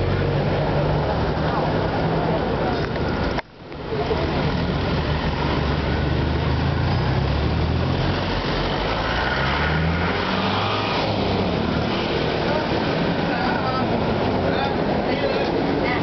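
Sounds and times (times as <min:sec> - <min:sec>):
car engines idling: 0:00.0 - 0:09.0.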